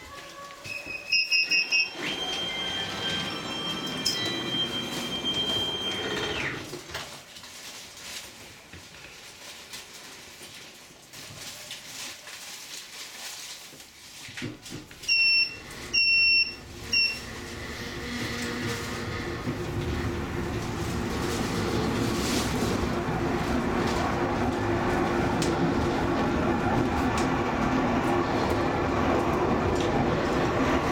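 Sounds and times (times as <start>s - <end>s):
high wheel squeal: 0.6s - 6.6s
funicular car running: 1.5s - 6.6s, 15.6s - 30.9s.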